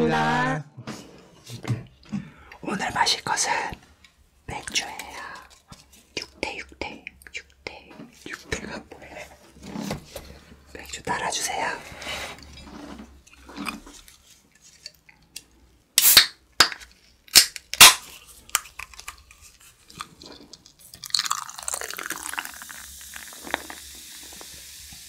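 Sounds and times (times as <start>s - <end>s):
beer can clicks: 16.0s - 18.6s
beer pouring and fizzing: 20.2s - 25.0s.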